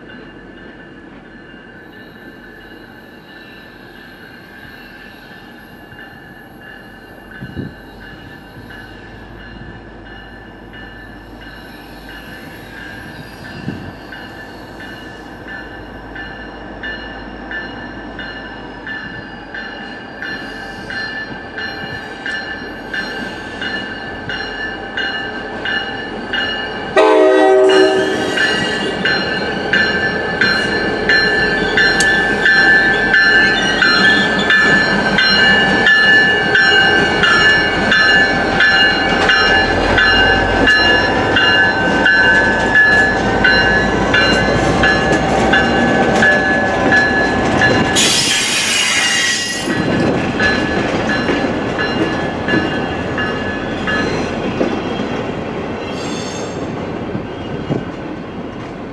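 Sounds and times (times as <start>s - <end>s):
locomotive bell ringing: 0.0s - 55.1s
diesel locomotives passing: 0.0s - 58.9s
train wheels: 0.0s - 58.9s
train horn blast: 27.0s - 28.9s.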